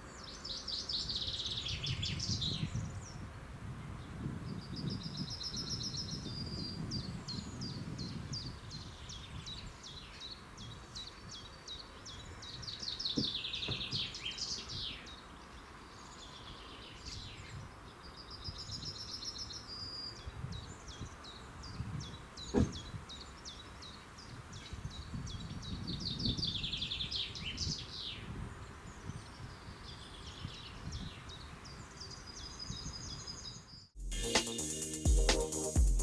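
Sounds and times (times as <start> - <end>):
songbirds singing: 0.0 - 35.8.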